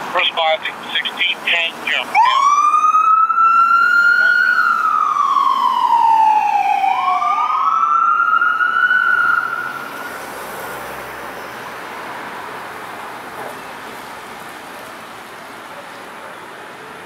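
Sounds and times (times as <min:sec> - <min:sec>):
passing traffic: 0:00.0 - 0:17.0
ambulance siren wailing: 0:00.8 - 0:10.5.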